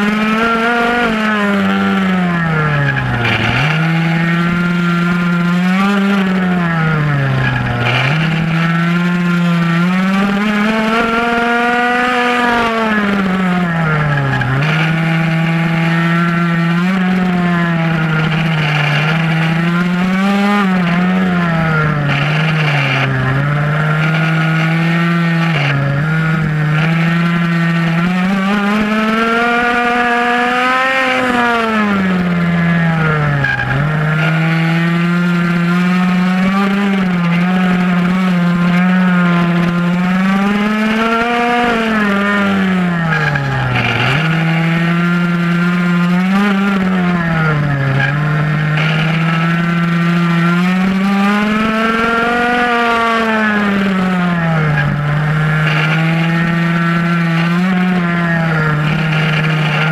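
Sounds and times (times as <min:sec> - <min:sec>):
two-stroke engine revving: 0:00.0 - 0:59.9.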